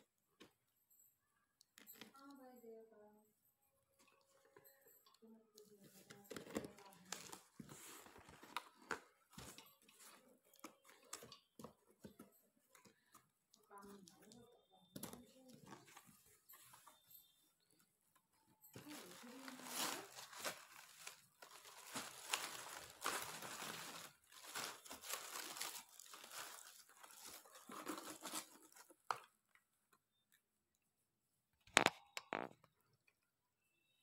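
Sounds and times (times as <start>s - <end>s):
paper packing wrap crinkling: 18.8s - 29.0s.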